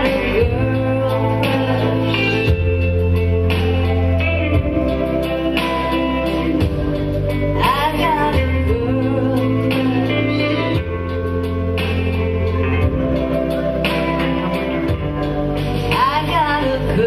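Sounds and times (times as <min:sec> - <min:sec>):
woman singing: 0:00.0 - 0:06.8, 0:07.5 - 0:11.2, 0:15.8 - 0:17.0
live band with guitar: 0:00.0 - 0:17.0.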